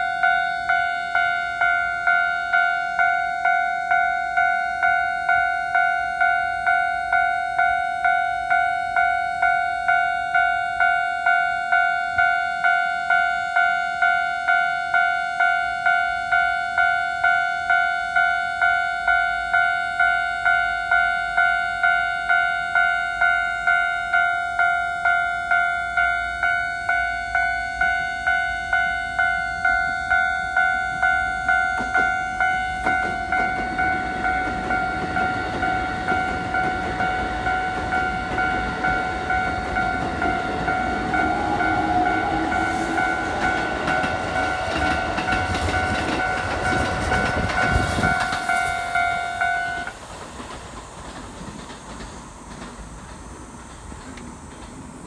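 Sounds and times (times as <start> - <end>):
level crossing alarm ringing: 0.0 - 49.9
train wheels clattering over joints: 32.8 - 55.0.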